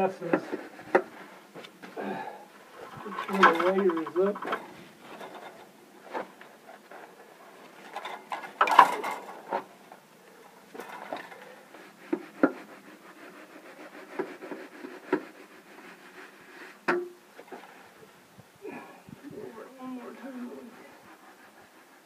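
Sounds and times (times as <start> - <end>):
metal scraping across wet concrete: 2.7 - 10.0, 10.7 - 18.1.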